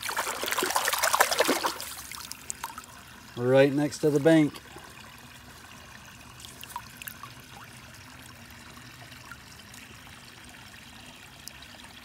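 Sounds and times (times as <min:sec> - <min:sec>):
small water splashes: 0:00.0 - 0:03.4, 0:04.1 - 0:10.6
creek water trickling: 0:00.0 - 0:12.0.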